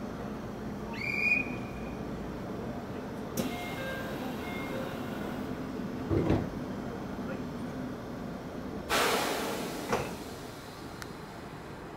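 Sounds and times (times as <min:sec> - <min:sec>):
electric train humming: 0:00.0 - 0:08.9.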